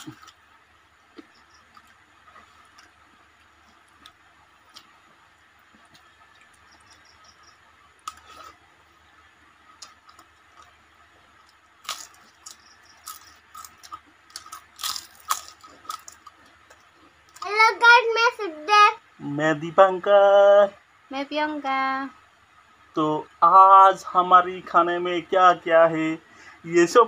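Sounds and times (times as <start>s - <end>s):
soft chewing clicks: 1.1s - 8.6s, 9.7s - 10.8s, 11.4s - 17.5s
crisp snacks crunching: 11.4s - 17.5s.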